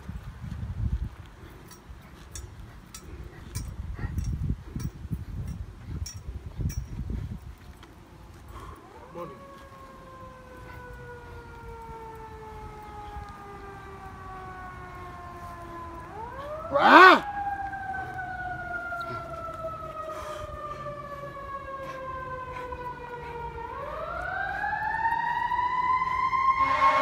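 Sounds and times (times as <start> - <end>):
emergency vehicle siren wailing: 8.2 - 27.0
loud horn blare: 26.3 - 27.0.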